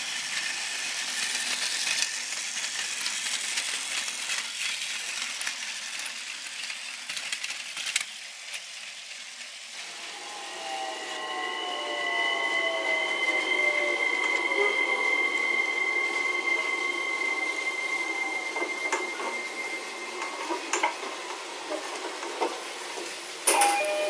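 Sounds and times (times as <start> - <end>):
plastic wheels clicking on track: 0.0 - 9.6
toy train motor whining: 0.0 - 21.0.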